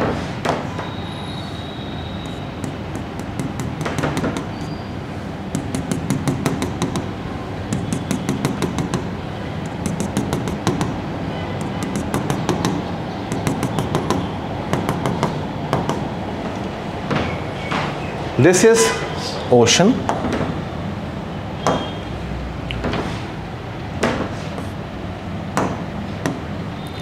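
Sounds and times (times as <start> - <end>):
pen tapping on whiteboard: 2.2 - 4.7, 5.5 - 7.1, 7.7 - 11.0, 11.6 - 16.1.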